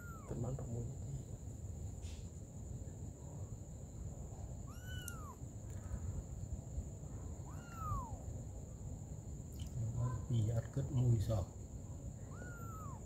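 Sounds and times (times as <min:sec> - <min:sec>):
kitten mewing: 0:00.0 - 0:00.6, 0:04.6 - 0:05.4, 0:07.4 - 0:08.3, 0:12.2 - 0:13.0.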